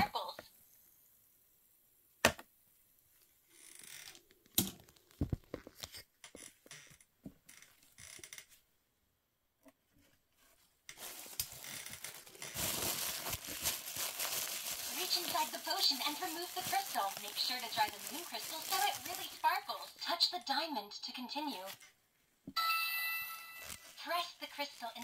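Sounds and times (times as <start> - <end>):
paper tissue crinkling: 10.4 - 20.2, 23.6 - 25.0.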